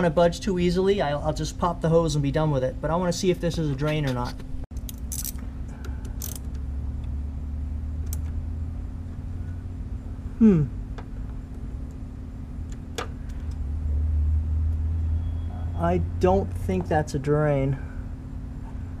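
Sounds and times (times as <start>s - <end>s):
steady low hum: 0.0s - 19.0s
person grunting: 10.4s - 10.8s.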